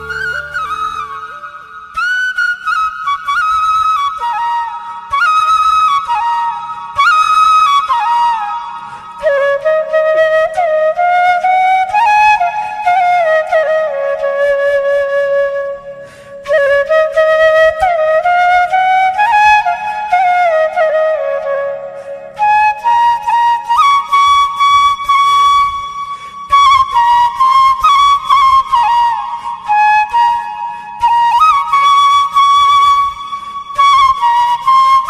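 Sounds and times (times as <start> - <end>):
solo flute melody: 0.0 - 35.0.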